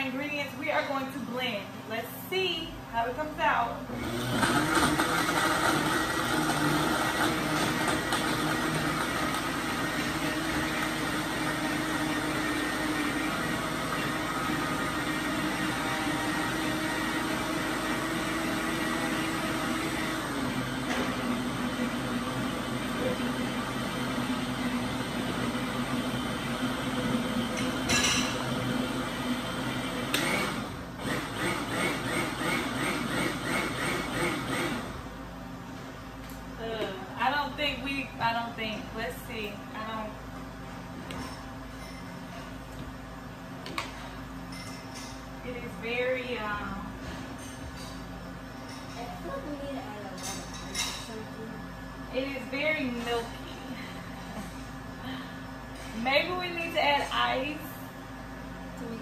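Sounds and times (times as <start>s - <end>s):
blender running: 3.8s - 35.1s.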